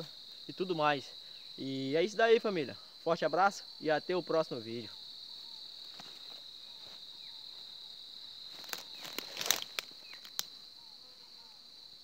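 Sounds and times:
insect buzzing: 0.0s - 12.0s
footsteps crunching on dry ground: 5.5s - 10.4s.

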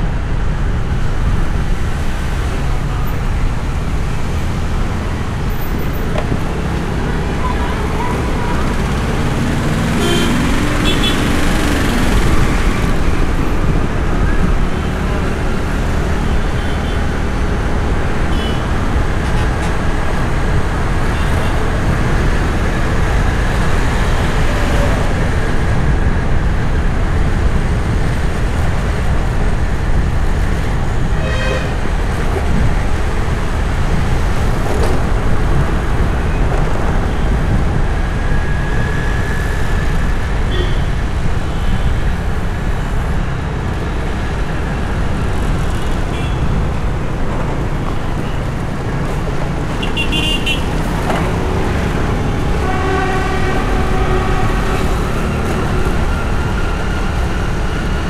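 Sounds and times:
car engine and road rumble: 0.0s - 58.0s
vehicle horn toot: 10.0s - 11.2s, 31.2s - 31.8s, 40.5s - 40.9s, 49.8s - 50.7s, 52.5s - 56.0s.

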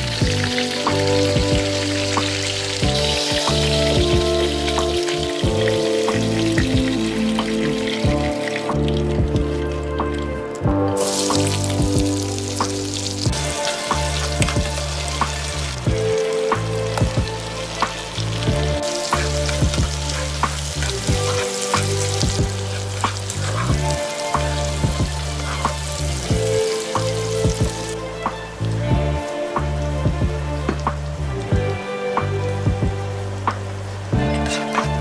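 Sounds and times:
vegetables sizzling in a frying pan: 0.0s - 9.1s, 11.0s - 29.8s.

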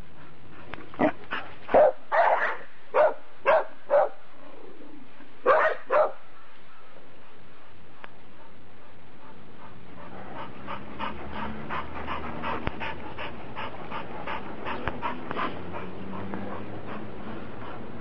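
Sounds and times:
dog panting: 8.3s - 18.0s.

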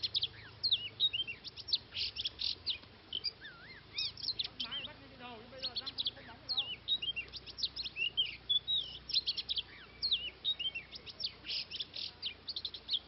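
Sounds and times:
bird singing varied whistles: 0.0s - 13.0s.

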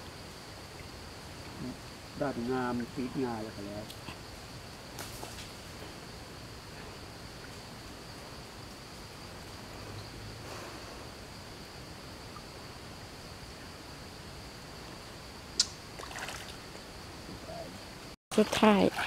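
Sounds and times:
insects droning: 0.0s - 19.0s
sharp click: 15.6s - 15.8s.

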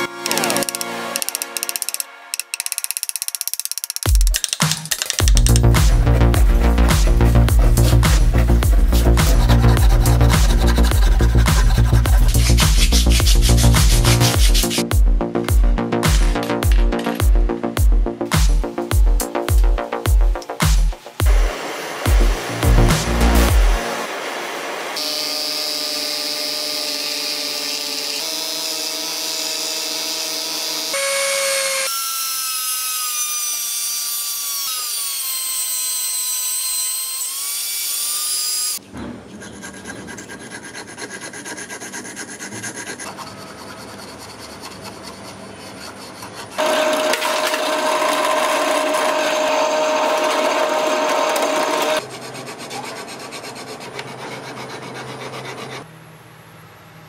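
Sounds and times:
rotary tool cutting metal: 0.0s - 14.9s, 24.8s - 38.8s, 39.4s - 55.9s
needle file rasping: 5.1s - 14.9s, 39.3s - 46.6s, 51.0s - 55.9s.

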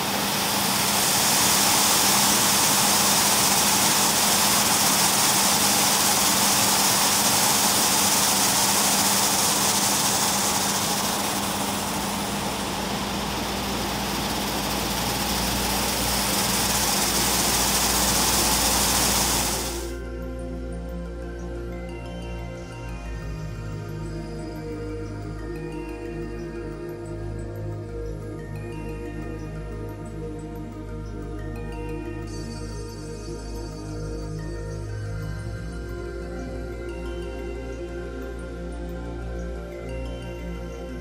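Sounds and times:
low steady hum: 0.0s - 21.1s.

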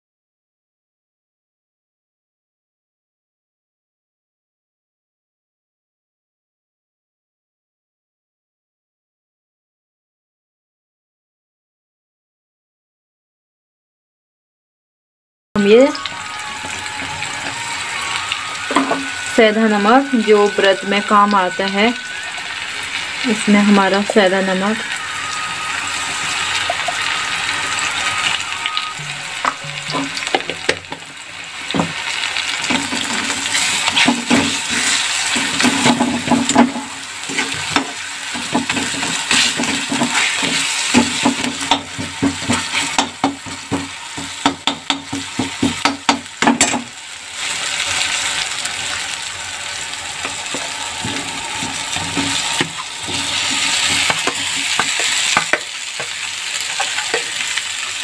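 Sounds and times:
masala sizzling in hot oil: 15.6s - 58.0s
metal ladle scraping pan: 16.2s - 31.0s, 31.9s - 58.0s.

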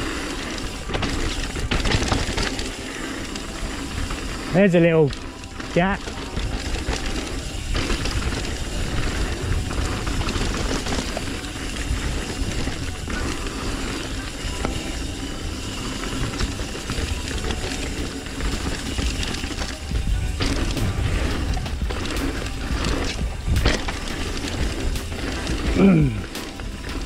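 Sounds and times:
bike rattling over rough ground: 0.0s - 27.0s
bike tyre noise: 0.0s - 27.0s
wind buffeting microphone: 19.0s - 25.8s.

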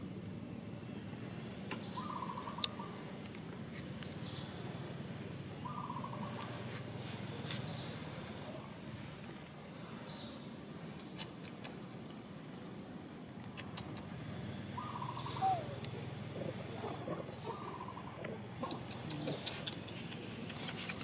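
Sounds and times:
low background hum: 0.0s - 21.0s
animal trilling call: 14.8s - 19.4s.

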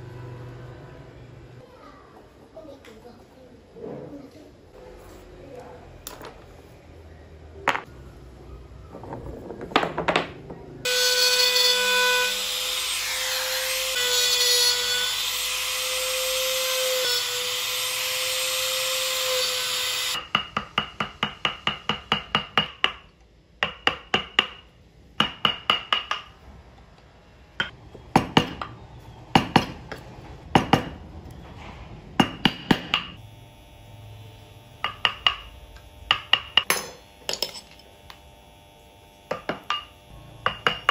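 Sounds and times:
small power tool running: 33.2s - 40.9s.

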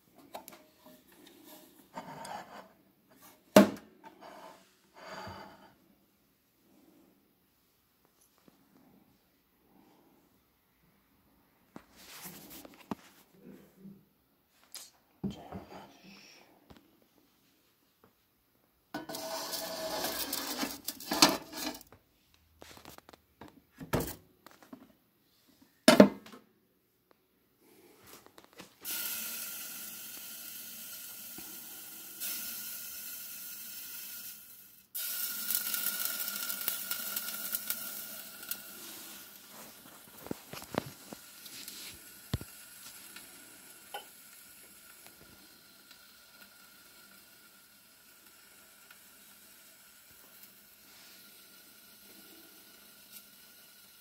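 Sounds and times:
water hissing as it heats: 19.0s - 21.8s, 28.8s - 54.0s.

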